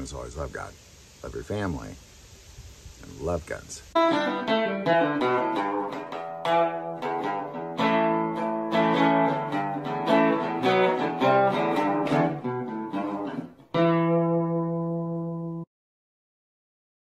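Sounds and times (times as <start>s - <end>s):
acoustic guitar plucked notes: 4.0s - 15.6s
strummed guitar chord: 4.0s - 15.6s.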